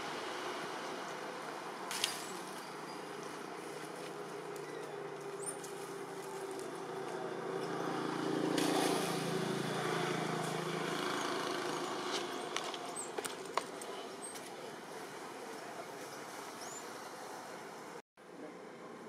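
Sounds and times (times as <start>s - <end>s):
passing vehicle engine droning: 4.4s - 13.1s.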